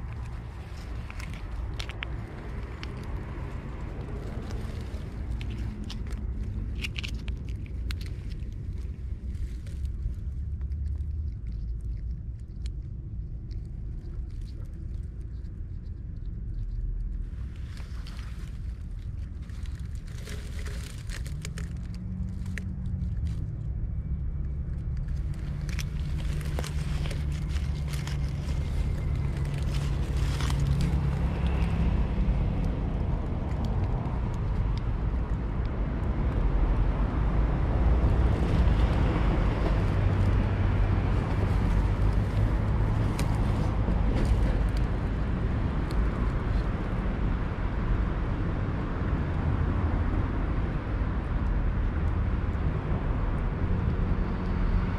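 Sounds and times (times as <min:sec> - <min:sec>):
vehicle engine running: 0:18.9 - 0:48.6.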